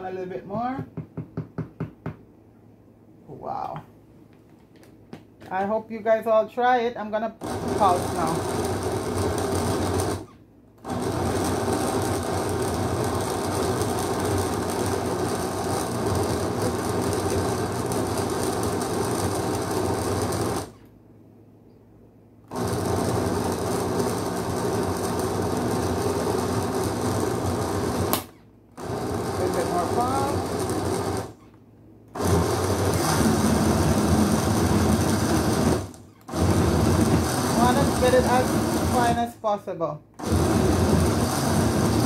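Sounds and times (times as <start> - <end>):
electric blender running: 7.4 - 20.9, 22.5 - 31.5, 32.1 - 39.3, 40.2 - 42.0.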